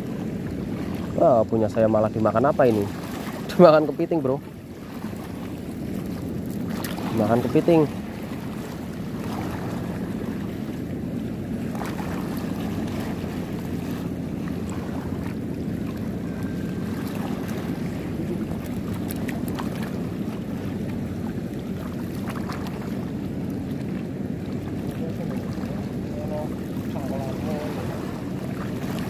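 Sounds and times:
low motor hum: 0.0 - 29.0
sea water lapping: 0.0 - 29.0.

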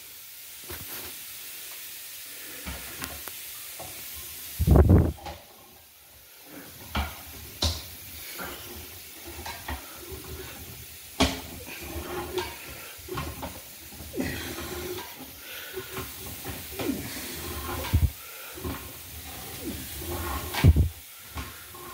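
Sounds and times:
steady hiss: 0.0 - 21.9
cable clicking and scraping in pipe: 14.4 - 21.9.

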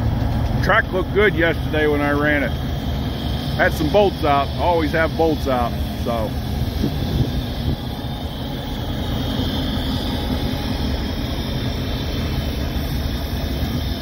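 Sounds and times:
locomotive engine rumble: 0.0 - 14.0
train wheels on rails: 0.0 - 14.0.

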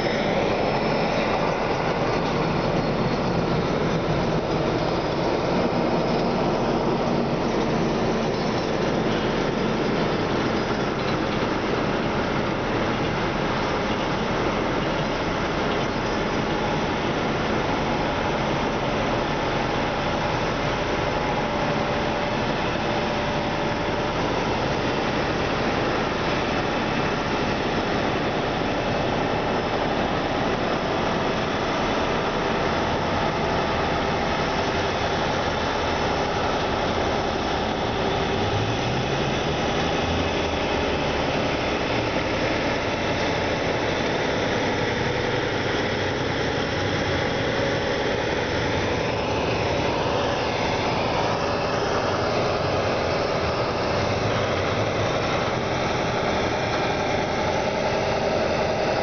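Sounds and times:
rushing noise: 0.0 - 59.0
truck diesel engine: 0.0 - 59.0.

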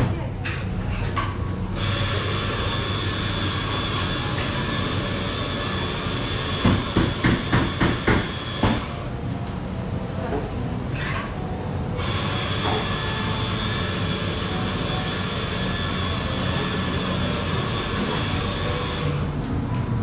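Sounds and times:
coffee machine hissing and whining: 0.5 - 20.0
sharp knocks: 6.6 - 8.9.

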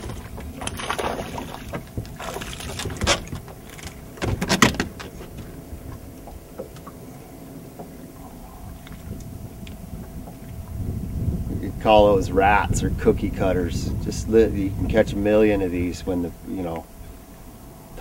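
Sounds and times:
fish splashing: 0.0 - 4.2
faint steady hum: 0.0 - 18.0.

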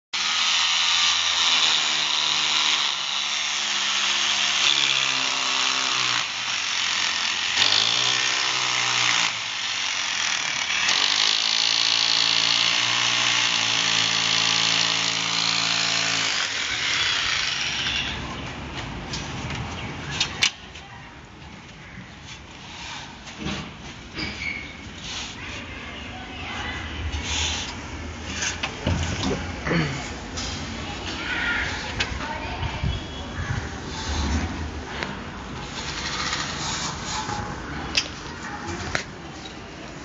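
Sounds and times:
electric drill boring into wall: 0.2 - 18.2.

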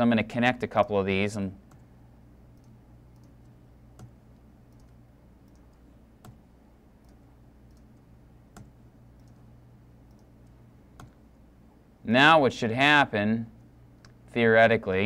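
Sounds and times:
steady low hum: 0.0 - 15.0
computer mouse clicks: 2.5 - 6.4, 7.0 - 11.2, 14.0 - 14.2
keyboard ticks: 2.5 - 6.4, 7.0 - 9.4, 10.0 - 11.2.

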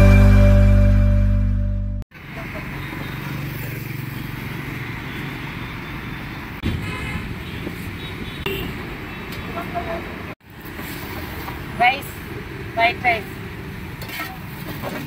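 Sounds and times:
music: 0.0 - 2.0
traffic rumble: 2.1 - 15.0.

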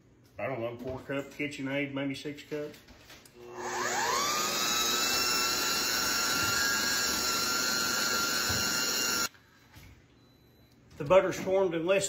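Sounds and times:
food processor motor whining: 3.4 - 9.3.

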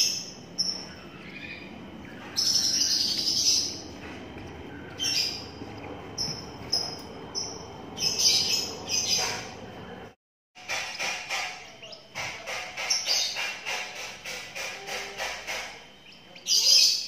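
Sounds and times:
bird chick chirping: 0.0 - 10.0.

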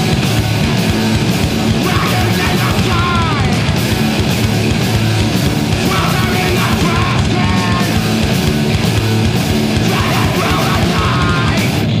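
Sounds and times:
distorted guitars: 0.0 - 12.0
fast hard-hit drums: 0.0 - 12.0.

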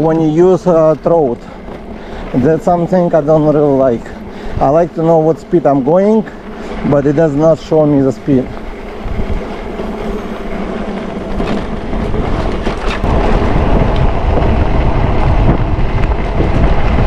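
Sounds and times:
bike rattling over bumps: 0.0 - 17.0
bike tyres rolling over gravel: 0.0 - 17.0
wind on microphone: 0.0 - 17.0.

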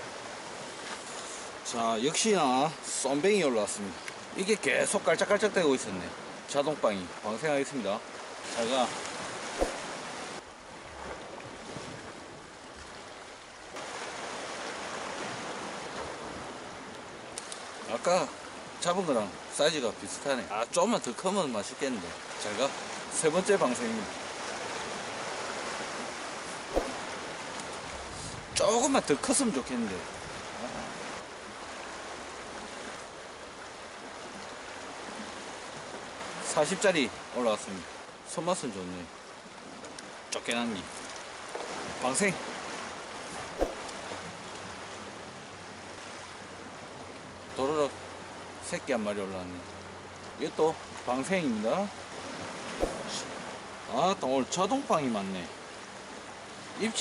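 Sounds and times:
sea waves on rocky shore: 7.4 - 16.9.

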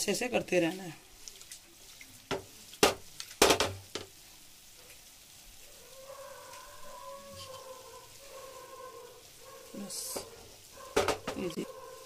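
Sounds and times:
faint frying sizzle: 0.0 - 12.0
metal pan knocks: 2.3 - 4.1, 10.9 - 11.5.

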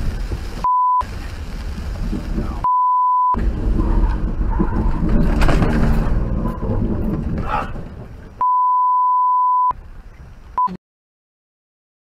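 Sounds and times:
tyres hissing on wet road: 0.0 - 2.6
censor bleep: 0.6 - 1.0, 2.6 - 3.4, 8.4 - 9.7, 10.6 - 10.8.

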